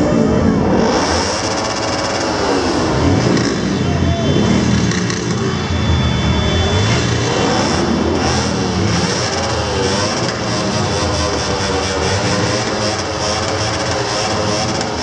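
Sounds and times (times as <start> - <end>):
crowd voices: 0.0 - 15.0
motorcycle engines rumbling: 0.0 - 15.0.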